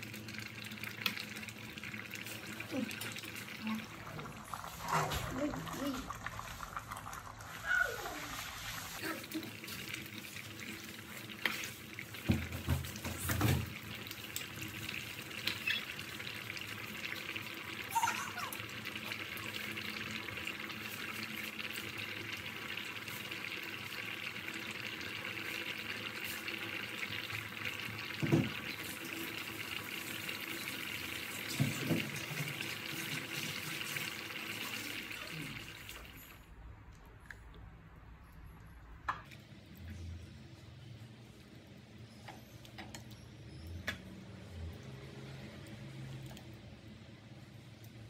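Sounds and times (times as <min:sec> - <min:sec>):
soup boiling: 0:00.0 - 0:36.2.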